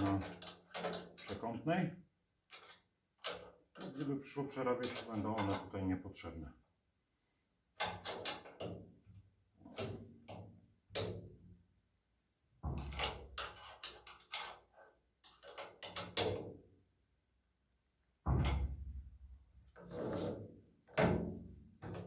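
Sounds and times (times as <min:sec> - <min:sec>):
metallic clicks and rattles: 0:00.0 - 0:01.4, 0:02.4 - 0:04.1, 0:04.7 - 0:05.7, 0:07.8 - 0:08.9, 0:12.8 - 0:16.5.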